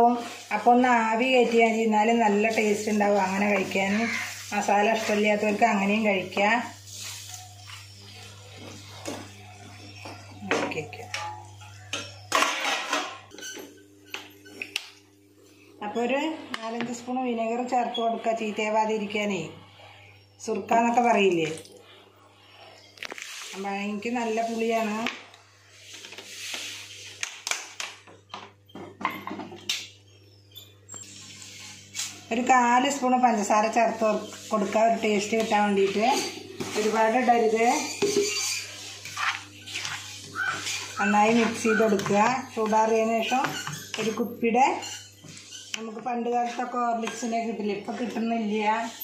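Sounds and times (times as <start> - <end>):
wooden spatula scraping a pan: 0.0 - 10.5, 32.9 - 49.0.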